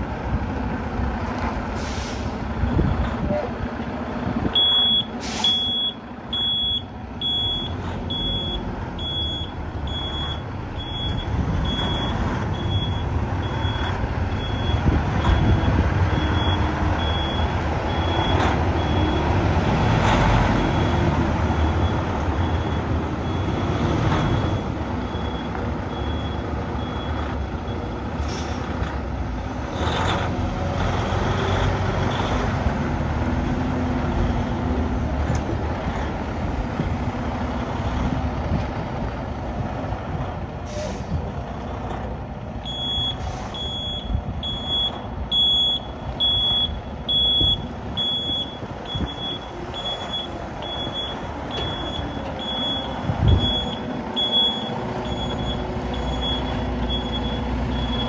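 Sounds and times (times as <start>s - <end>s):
truck diesel engine running: 0.0s - 58.0s
reversing alarm beeping: 4.5s - 19.4s, 20.5s - 28.0s, 42.6s - 58.0s.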